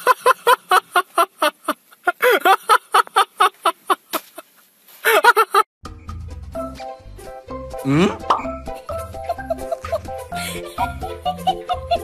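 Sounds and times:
person laughing hard: 0:00.0 - 0:05.6, 0:08.8 - 0:12.0.

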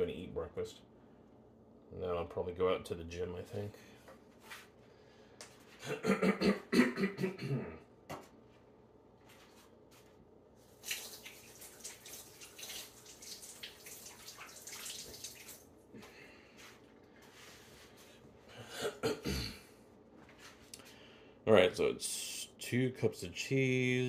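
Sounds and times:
water running from tap: 0:10.7 - 0:15.7.

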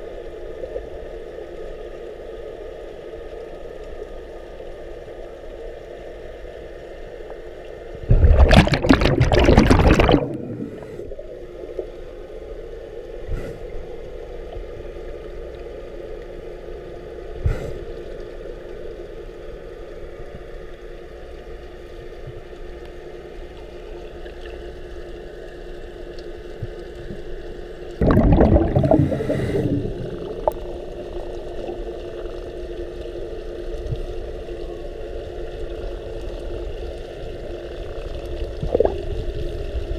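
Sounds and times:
underwater low hum: 0:00.0 - 0:39.9
diver exhaling bubbles: 0:08.0 - 0:11.2, 0:28.0 - 0:31.9, 0:38.6 - 0:39.1.

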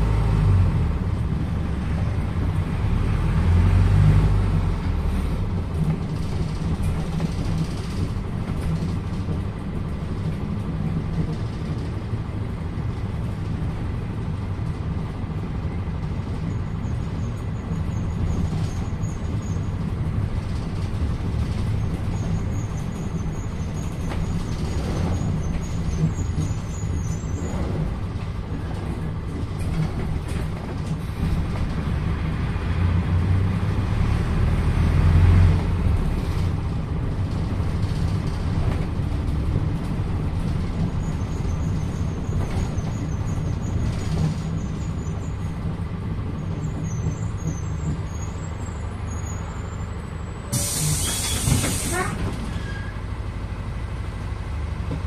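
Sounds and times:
bus diesel engine running: 0:00.0 - 0:55.0
compressed air hiss: 0:50.5 - 0:52.2.

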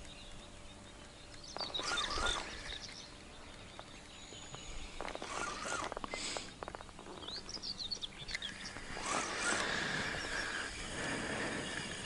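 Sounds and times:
small birds chirping: 0:00.0 - 0:12.0
rustling: 0:04.4 - 0:07.7.

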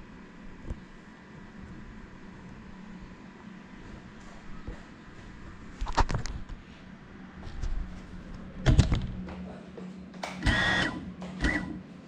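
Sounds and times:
steady low hum: 0:00.0 - 0:12.0
drone motor and propeller whine: 0:10.4 - 0:12.0.

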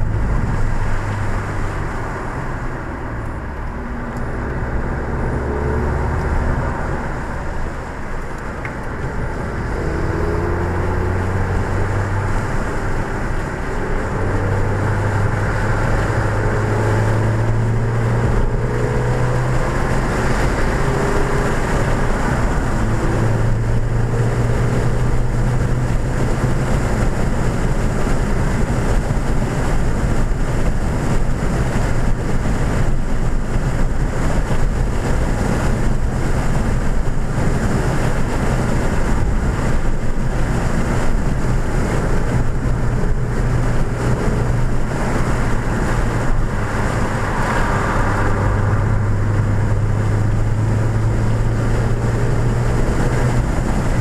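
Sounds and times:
engine drone climbing in pitch: 0:00.0 - 0:29.1, 0:41.3 - 0:54.0
road and wind noise: 0:00.0 - 0:54.0.

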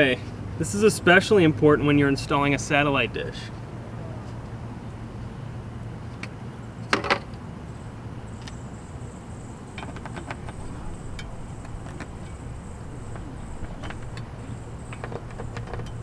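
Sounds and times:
low outdoor hum: 0:00.0 - 0:16.0
metal mount clicks and knocks: 0:09.8 - 0:12.4, 0:13.1 - 0:16.0.

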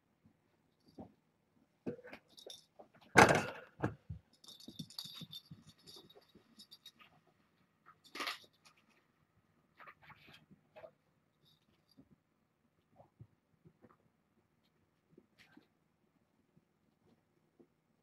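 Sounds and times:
metallic jingling rattle: 0:04.3 - 0:07.0.

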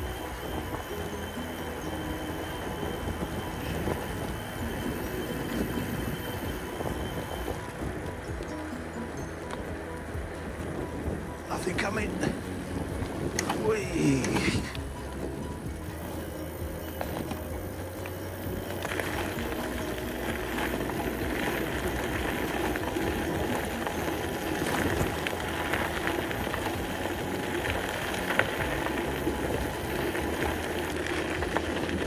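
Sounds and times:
bicycle tyre noise: 0:00.0 - 0:32.0
wind rumble on microphone: 0:00.0 - 0:32.0
small rattles and ticks: 0:14.6 - 0:32.0.

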